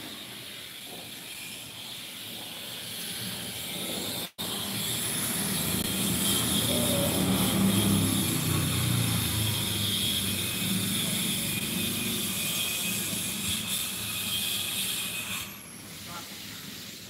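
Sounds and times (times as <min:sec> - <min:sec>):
street noise: 0:00.0 - 0:17.0
motor scooter riding past: 0:04.4 - 0:13.4
steady hiss: 0:15.6 - 0:17.0.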